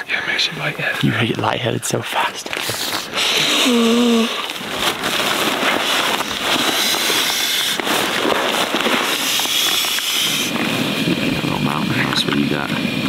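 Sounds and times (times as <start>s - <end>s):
nylon sack crinkling and rustling: 2.5s - 11.0s.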